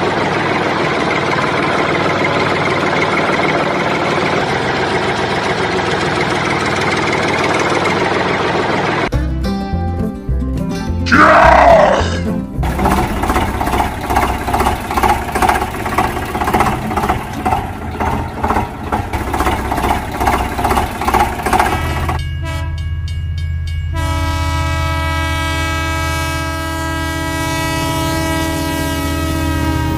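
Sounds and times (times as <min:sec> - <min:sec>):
train chugging: 0:00.0 - 0:09.1, 0:11.2 - 0:29.9
train horn: 0:22.4 - 0:22.8, 0:23.9 - 0:29.9.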